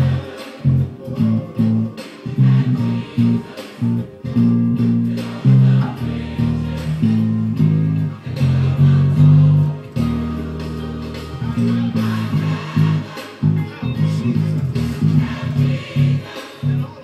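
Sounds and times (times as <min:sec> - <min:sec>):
electric bass guitar notes: 0:00.0 - 0:16.9.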